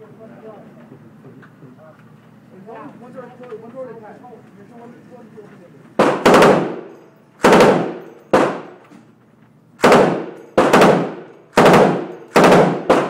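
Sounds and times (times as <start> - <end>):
machine gun bursts: 6.0 - 8.8, 9.8 - 13.0.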